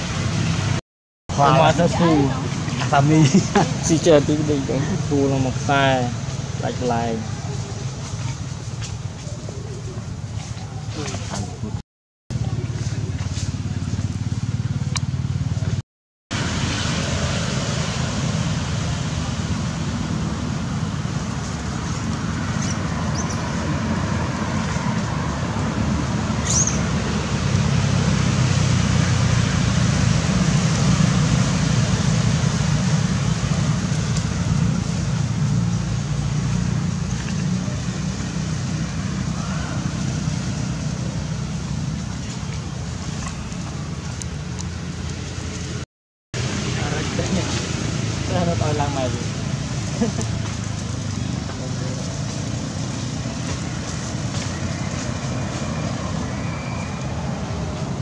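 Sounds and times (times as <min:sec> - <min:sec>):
constant hiss: 0:01.3 - 0:11.8, 0:46.4 - 0:55.8.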